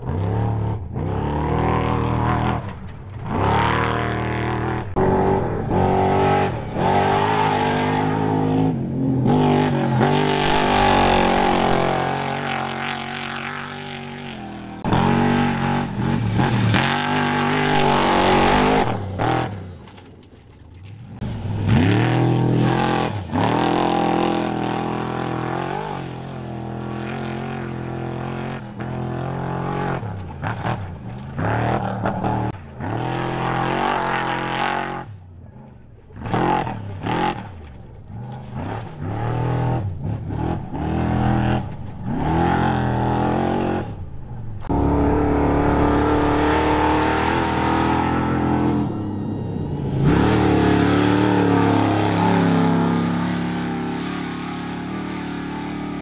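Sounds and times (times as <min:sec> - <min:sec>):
race truck engines revving: 0:00.0 - 0:56.0.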